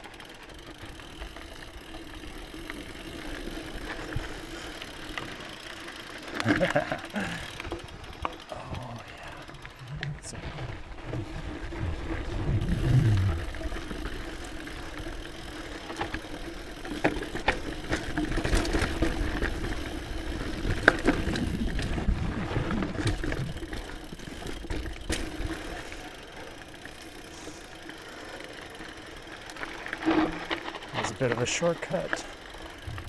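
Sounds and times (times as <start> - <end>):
bike chain and frame rattling: 0.0 - 33.0
bike tyres rolling on dirt: 0.0 - 33.0.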